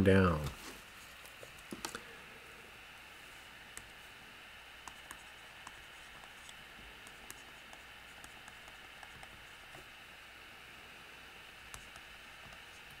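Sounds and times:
low hiss and hum: 0.0s - 13.0s
stylus tapping and scratching: 4.8s - 9.9s, 11.6s - 13.0s.

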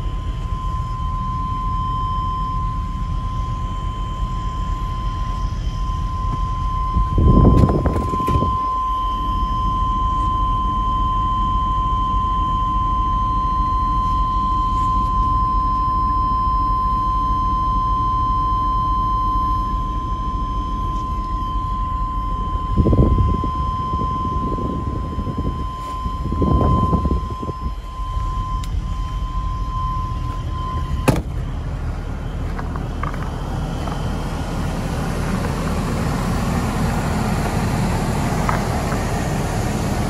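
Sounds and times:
constant high-pitched tone: 0.0s - 40.0s
van engine idling: 0.0s - 40.0s
low noise bumps: 22.6s - 40.0s.

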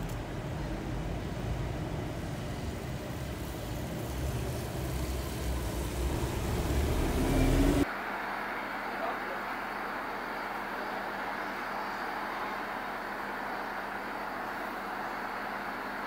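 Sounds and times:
vehicle rumble: 0.0s - 7.9s
rising whine: 0.9s - 8.7s.

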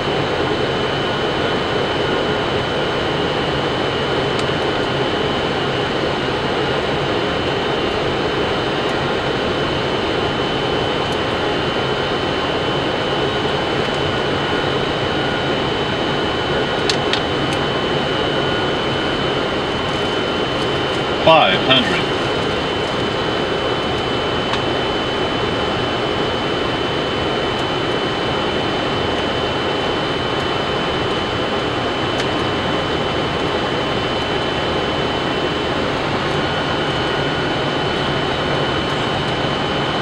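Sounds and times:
aircraft engines: 0.0s - 40.0s
thin steady high whine: 0.0s - 40.0s
airflow and air conditioning rush: 13.2s - 25.6s.

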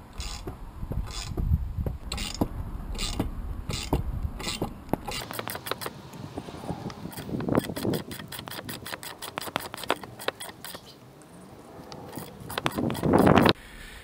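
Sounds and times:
ratcheting spanner clicking: 3.0s - 6.0s, 7.1s - 10.9s, 12.1s - 13.6s.

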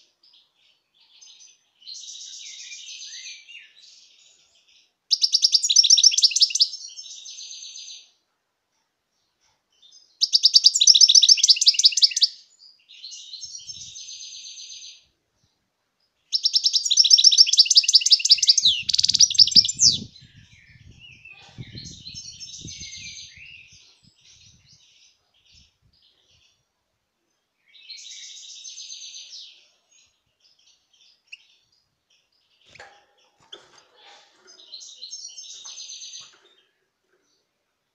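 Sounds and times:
goldfinch twittering song: 5.1s - 7.0s, 10.2s - 14.9s, 16.3s - 25.7s.

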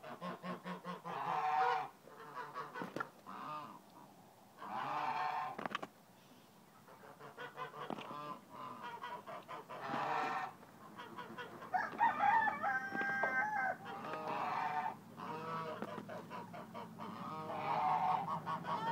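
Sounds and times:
rooster calling harshly: 9.8s - 18.9s
rooster crowing: 11.7s - 15.0s.

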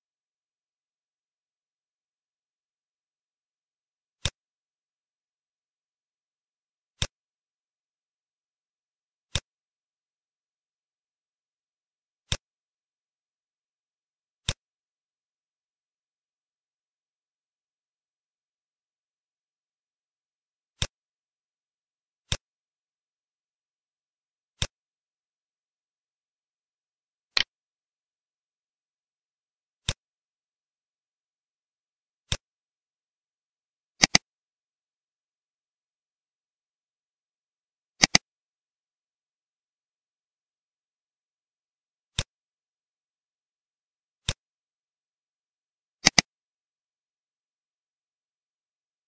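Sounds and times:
computer mouse clicks: 4.2s - 4.4s, 7.0s - 7.2s, 20.8s - 21.0s, 24.6s - 24.8s, 34.0s - 34.3s, 38.0s - 38.3s, 42.2s - 42.4s, 46.0s - 46.3s.

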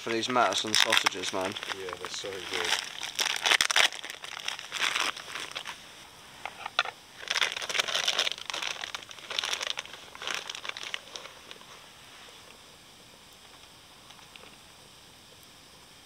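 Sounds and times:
crinkling and rustling: 0.0s - 5.8s, 6.5s - 11.8s.

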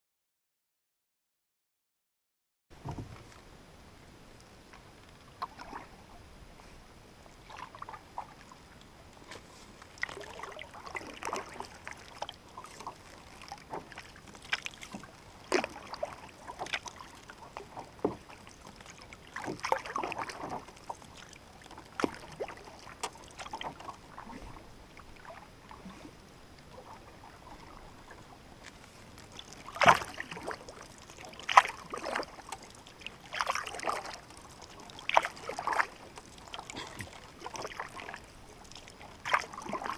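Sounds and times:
water gurgling around hull: 2.8s - 39.9s
paddle splashes: 4.6s - 39.9s.

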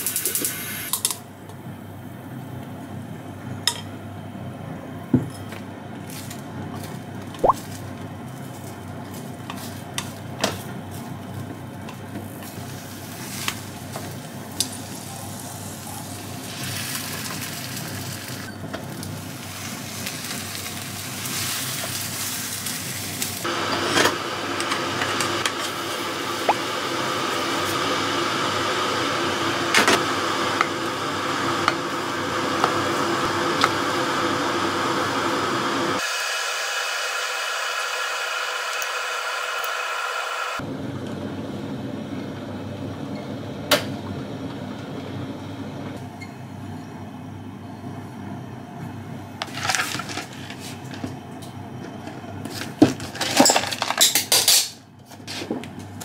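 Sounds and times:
omelette sizzling in a frying pan: 12.4s - 23.5s.

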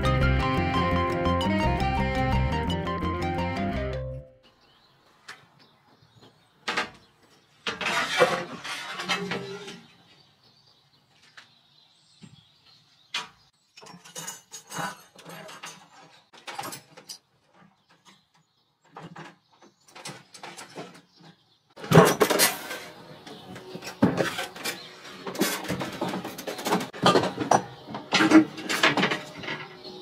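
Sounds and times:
glass panes knocking and scraping: 7.6s - 9.9s, 13.8s - 18.2s, 18.9s - 29.9s.

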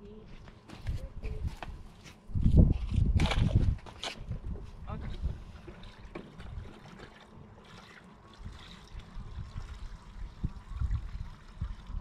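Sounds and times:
water trickling into plastic bucket: 5.6s - 12.0s.

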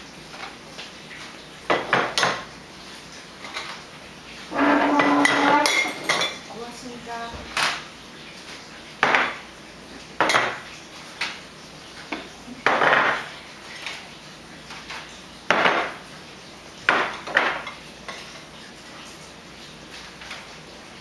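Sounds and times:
bowls clacking on wooden table: 4.5s - 6.4s.

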